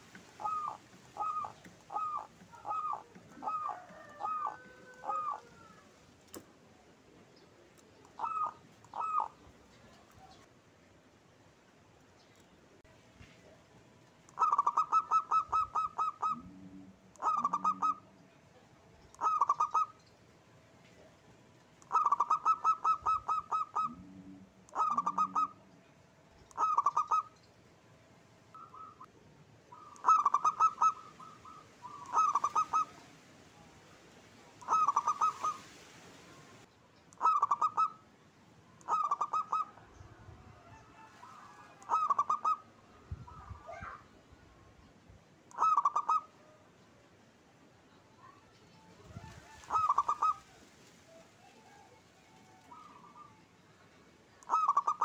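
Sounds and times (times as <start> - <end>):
dove cooing: 0.0 - 5.9, 8.0 - 10.4, 14.3 - 18.2, 19.2 - 20.0, 21.8 - 25.7, 26.5 - 27.3, 28.6 - 29.1, 29.7 - 33.2, 34.6 - 35.8, 37.2 - 38.0, 38.8 - 44.0, 45.5 - 46.6, 49.0 - 53.4, 54.4 - 55.0.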